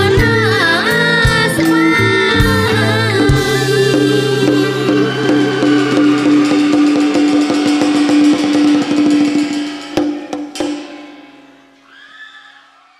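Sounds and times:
wood-block and drum strikes: 3.2 - 11.1.

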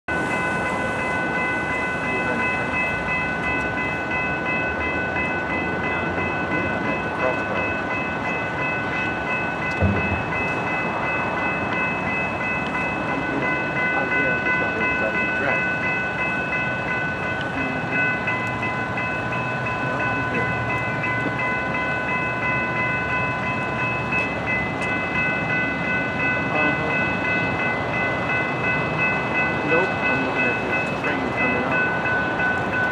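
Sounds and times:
rumble of rail and street noise: 0.0 - 32.9
railroad crossing bell ringing: 0.1 - 32.9
low thump: 9.8 - 10.3.

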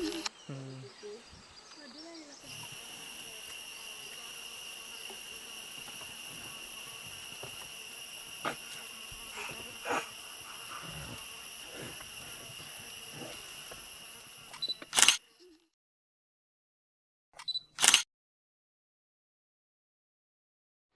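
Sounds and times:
insects droning high-pitched: 0.0 - 15.6.

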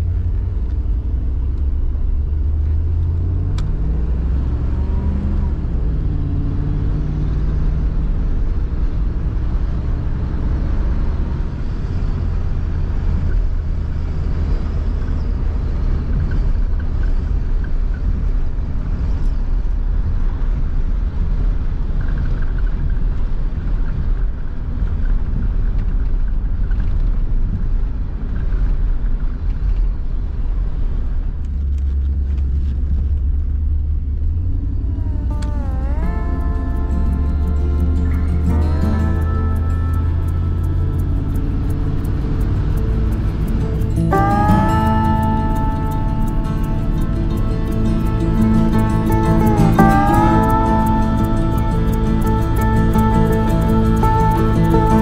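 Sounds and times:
engine rumble from inside vehicle: 0.0 - 55.0
tyre and road noise: 0.0 - 55.0
music: 34.8 - 55.0.

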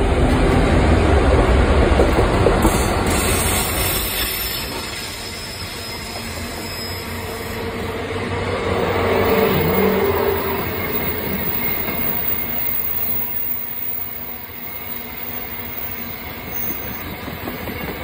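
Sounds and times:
train wagons rolling and clattering: 0.0 - 7.4, 9.2 - 18.0
diesel locomotives rumbling: 0.0 - 18.0
wheel squeal: 3.4 - 7.8, 9.2 - 18.0.

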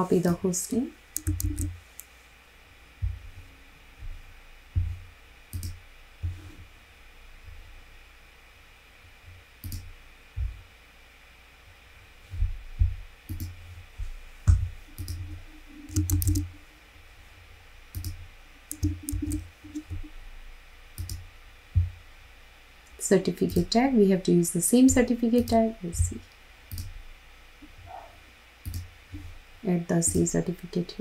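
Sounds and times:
keyboard keystrokes: 1.2 - 1.8, 15.9 - 16.5, 18.0 - 20.0
mouse clicks: 1.2 - 2.1, 15.9 - 16.5, 17.9 - 20.0.

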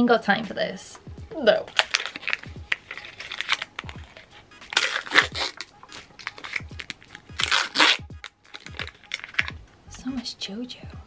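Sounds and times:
plastic wrappers crinkling and tearing: 1.6 - 9.6
loud plastic rips: 1.7 - 9.6.

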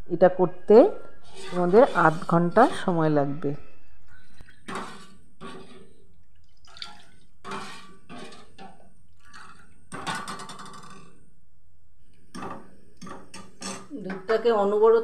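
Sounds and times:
spoon scraping a steel pan: 1.2 - 3.0, 4.7 - 6.0, 7.4 - 11.1.

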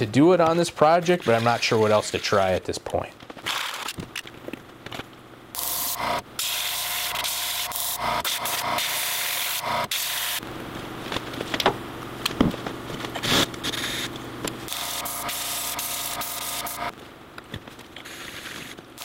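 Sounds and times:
small compressor humming: 5.5 - 10.7, 13.2 - 16.9.

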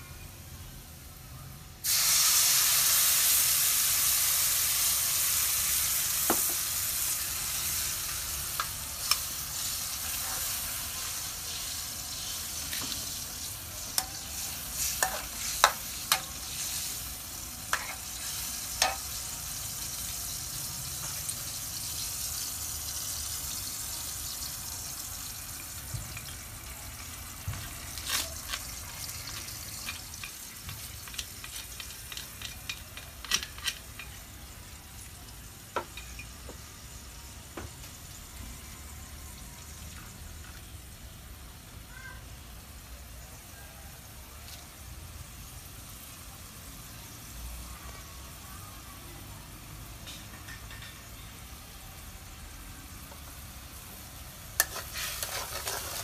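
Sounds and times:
food sizzling in hot oil: 1.8 - 56.0.

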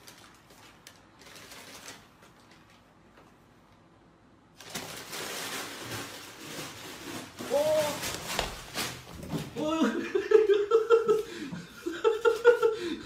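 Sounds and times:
paper bag crinkling: 0.0 - 3.0, 4.6 - 9.3.

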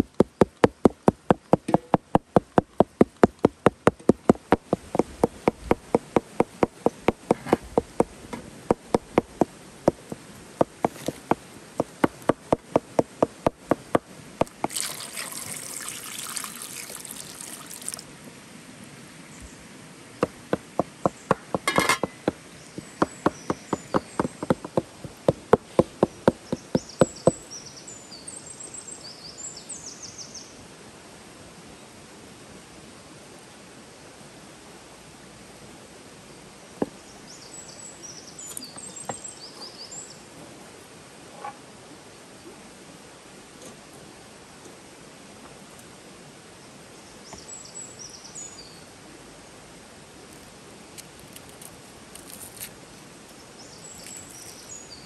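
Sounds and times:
cleaver chopping on wooden board: 0.0 - 8.1, 8.7 - 14.8, 20.2 - 27.4
steady low hiss: 0.0 - 55.0
water pouring into metal pot: 14.5 - 18.1.

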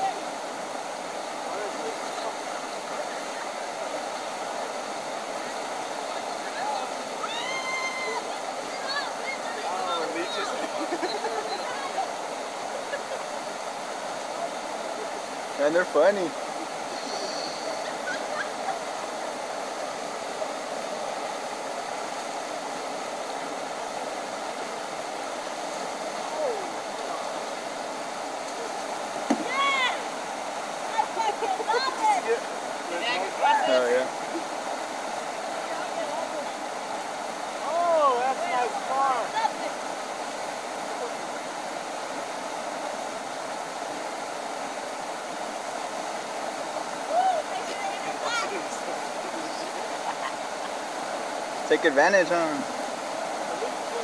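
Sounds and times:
river rapids rushing over rocks: 0.0 - 54.0.

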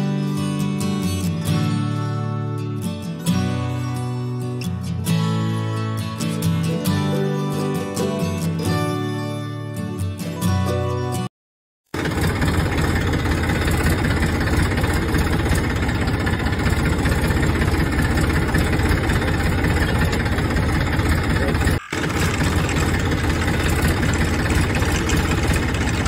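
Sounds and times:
tractor engine idling: 12.0 - 26.0.

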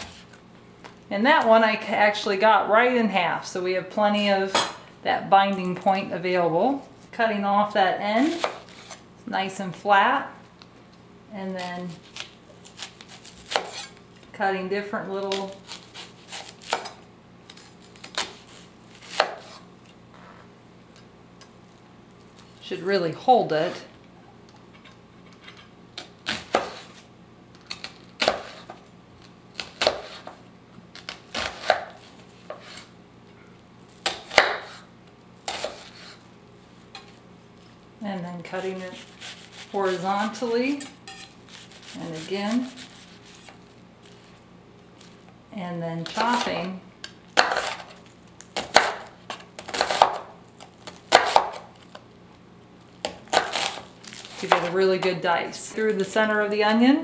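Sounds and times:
knife chopping onion on board: 19.0 - 19.6, 26.3 - 27.0, 28.2 - 28.7, 29.6 - 30.4, 31.0 - 32.8, 34.0 - 34.8, 47.4 - 47.9, 48.6 - 50.3, 51.1 - 51.7, 53.0 - 53.8.

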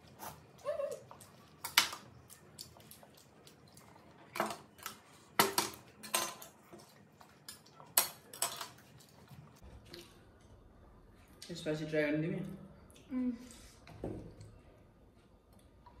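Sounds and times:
utensils clinking on ceramic bowls: 5.4 - 8.9.

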